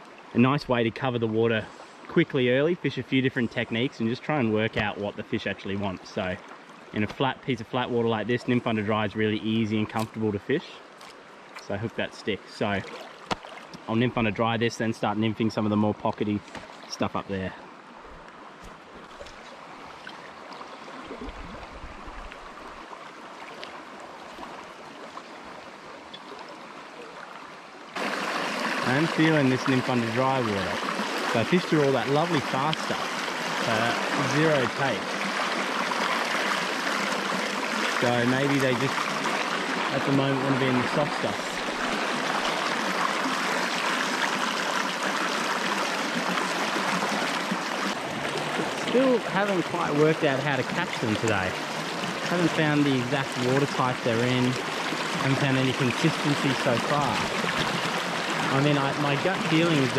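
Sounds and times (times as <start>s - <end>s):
small splashes and trickles: 9.8s - 11.8s, 12.6s - 13.9s, 17.7s - 59.9s
river water rushing: 17.6s - 59.9s.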